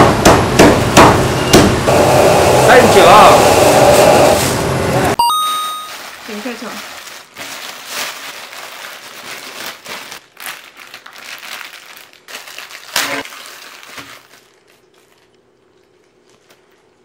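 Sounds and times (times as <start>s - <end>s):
plastic bags crinkling: 5.8s - 17.0s.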